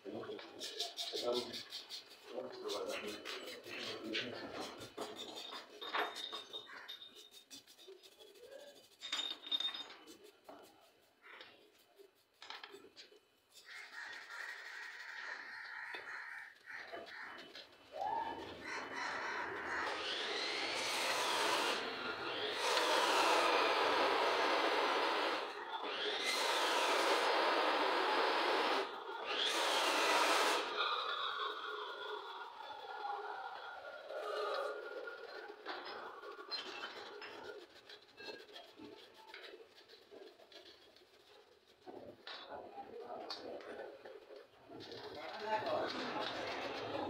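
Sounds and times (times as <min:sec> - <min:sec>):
metal tools clinking: 0:04.6 - 0:07.9, 0:08.9 - 0:10.4.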